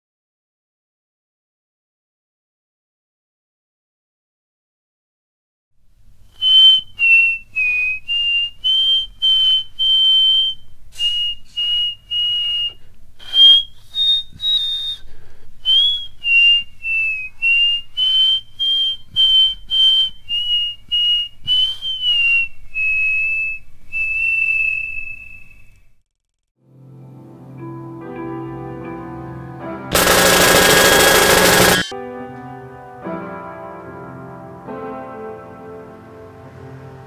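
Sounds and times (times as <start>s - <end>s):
person whistling a slow tune: 6.4s - 25.9s.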